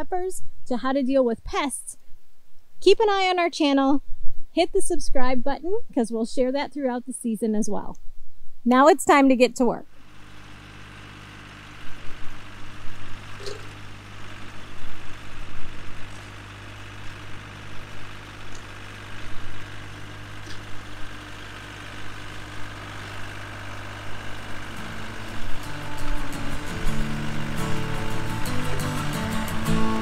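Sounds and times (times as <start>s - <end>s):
garden machine engine running: 9.9s - 30.0s.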